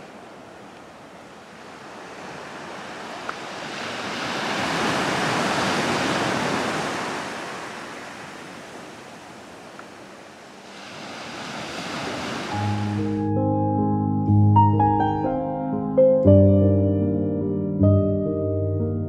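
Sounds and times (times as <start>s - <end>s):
wave surging on rocky shore: 0.0s - 13.0s.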